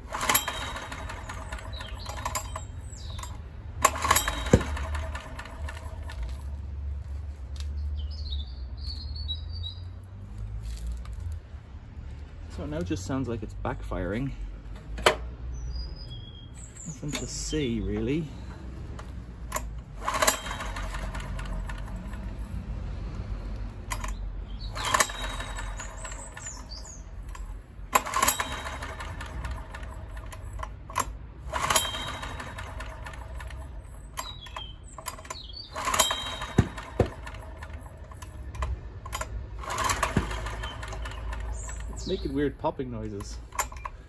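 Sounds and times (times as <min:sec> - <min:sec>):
generator engine running rough: 0:00.0 - 0:06.6, 0:16.8 - 0:22.7, 0:23.8 - 0:44.0
sharp engine pops: 0:00.2 - 0:06.3, 0:34.2 - 0:42.1.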